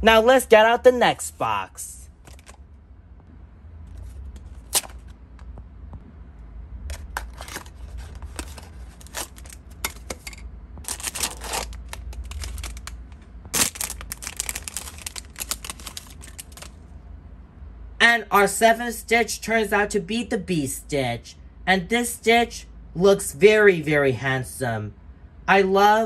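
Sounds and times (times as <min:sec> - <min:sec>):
foil bag crinkling and tearing: 0:07.3 - 0:09.6, 0:10.9 - 0:13.0, 0:13.6 - 0:16.8.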